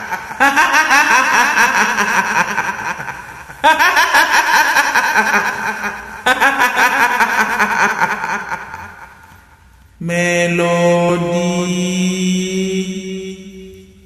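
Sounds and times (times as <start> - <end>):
woman cackling: 0.0 - 9.2.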